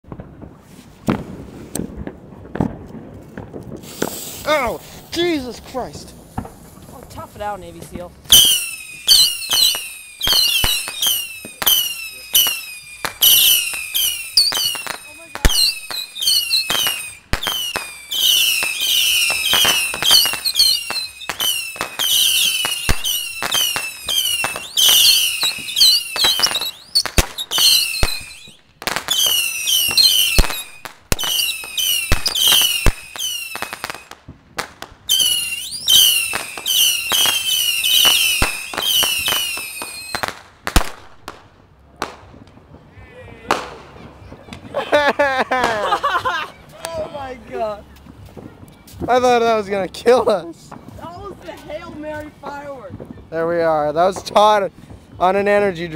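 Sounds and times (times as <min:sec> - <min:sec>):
rockets popping: 0:00.0 - 0:55.9
rockets whistling: 0:03.8 - 0:41.3.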